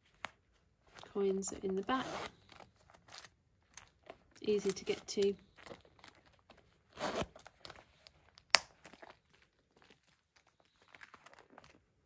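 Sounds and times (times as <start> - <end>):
leather rustling: 0.0 - 12.0
metal zip pulled: 1.9 - 3.9, 6.9 - 7.6.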